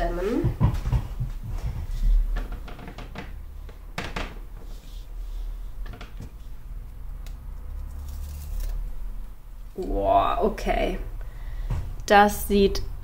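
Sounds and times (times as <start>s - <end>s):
handling and rubbing noise: 0.0s - 9.7s.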